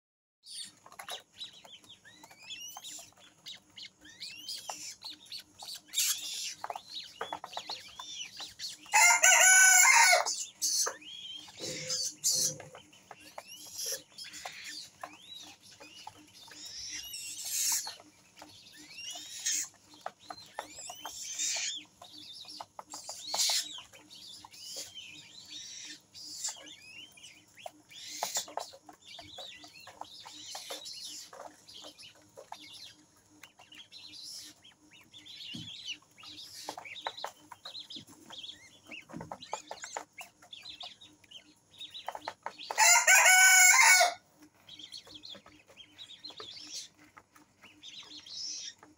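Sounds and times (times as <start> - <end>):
bird chicks peeping: 0.4 - 48.9.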